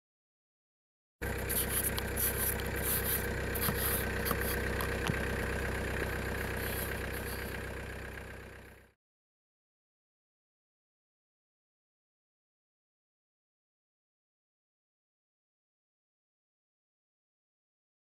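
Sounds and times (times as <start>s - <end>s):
car engine idling: 1.2s - 9.0s
ice scraper rasping on windshield: 1.4s - 5.3s, 6.3s - 7.6s.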